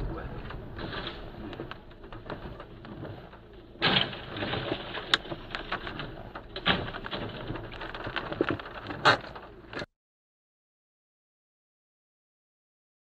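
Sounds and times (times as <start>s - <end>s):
debris scraping and clattering: 0.0s - 9.9s
van crashing onto road: 3.7s - 9.4s.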